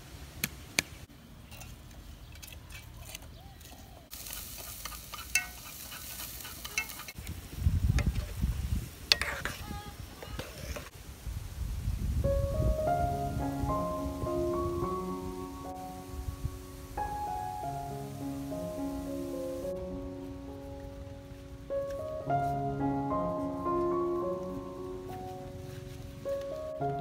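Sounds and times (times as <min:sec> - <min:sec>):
food sizzling in a pan: 0:04.1 - 0:10.9
utensils clicking and knocking: 0:06.5 - 0:07.2.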